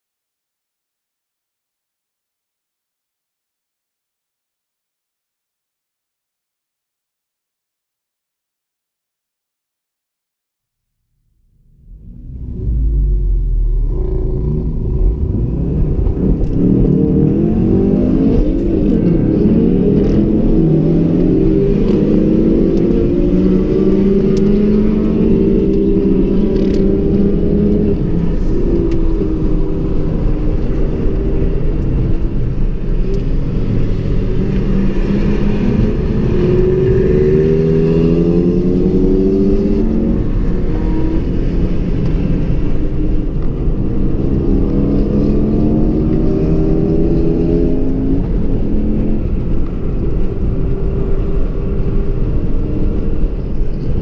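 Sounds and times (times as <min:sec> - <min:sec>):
car engine revving through gears: 0:11.5 - 0:54.0
tyre and road noise: 0:11.5 - 0:54.0.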